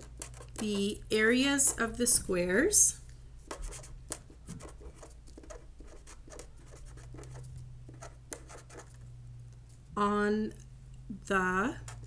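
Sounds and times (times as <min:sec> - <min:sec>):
pen scratching on paper: 0:00.0 - 0:02.2, 0:03.5 - 0:09.0, 0:11.8 - 0:12.0
faint low hum: 0:00.0 - 0:12.0.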